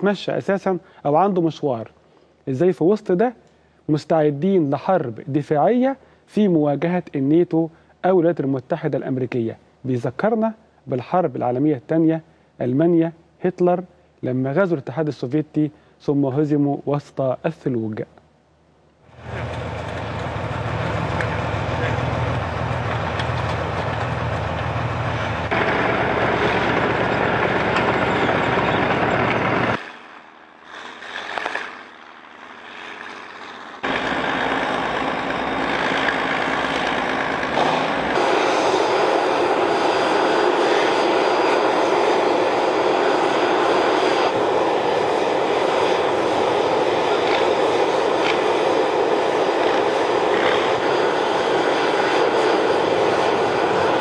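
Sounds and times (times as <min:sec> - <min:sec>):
heavy vehicle engines running: 0:19.1 - 0:54.0.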